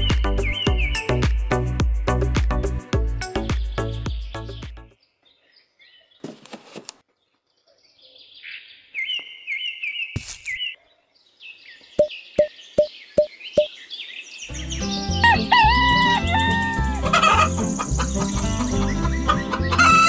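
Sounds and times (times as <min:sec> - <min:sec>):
music: 0:00.0 - 0:05.0, 0:14.5 - 0:20.0
small birds chirping: 0:00.0 - 0:06.4, 0:07.0 - 0:20.0.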